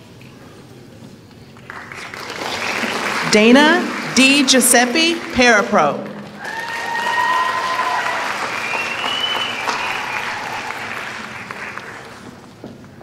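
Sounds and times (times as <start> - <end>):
audience applauding: 1.6 - 12.5
high cheers: 6.2 - 11.2.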